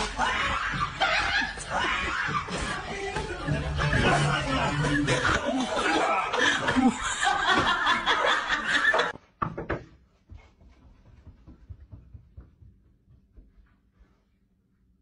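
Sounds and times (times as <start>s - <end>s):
people laughing and chattering: 0.0s - 9.2s
faint knocks and thuds: 9.4s - 13.6s.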